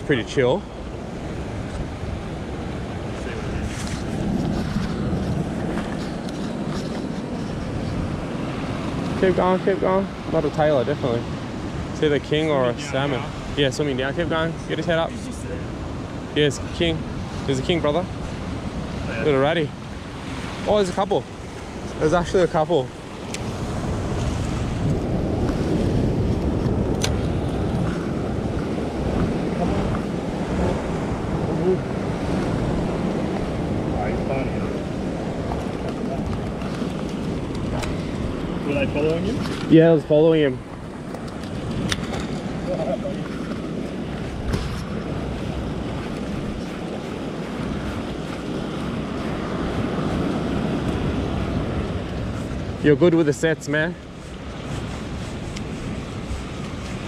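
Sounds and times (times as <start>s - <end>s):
ocean swell washing against rock: 0.0s - 57.0s
wind buffeting microphone: 0.0s - 57.0s
sharp click: 26.9s - 27.2s.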